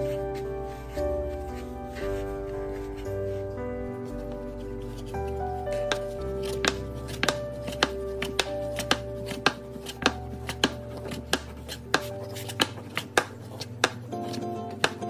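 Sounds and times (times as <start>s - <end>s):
background music: 0.0s - 15.0s
rolling pin knocking on wooden board: 5.8s - 15.0s.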